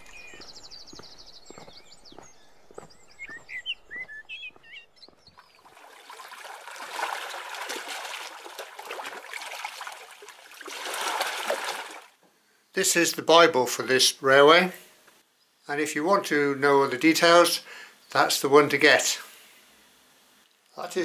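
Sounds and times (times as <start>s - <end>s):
birds chirping and trilling: 0.0s - 6.1s
water trickling: 5.3s - 12.2s
waves lapping against rocks: 5.4s - 12.2s.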